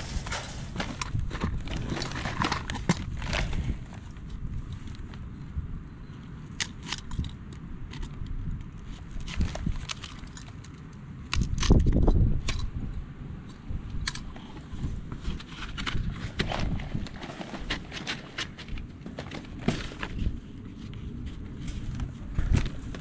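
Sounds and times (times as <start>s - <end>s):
wire mesh and rebar clinking: 0.0s - 3.1s.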